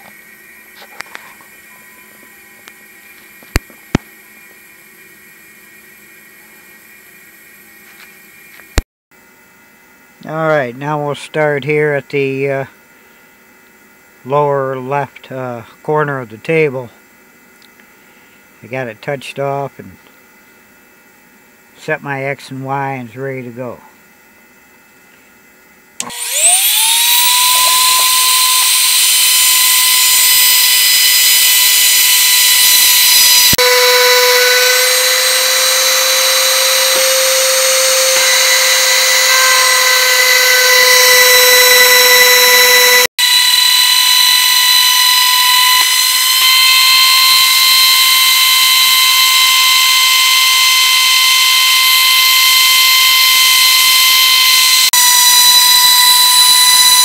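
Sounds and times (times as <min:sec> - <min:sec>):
router high whine: 0:00.0 - 0:08.8, 0:26.0 - 0:57.0
router bit cutting wood hiss: 0:26.0 - 0:57.0.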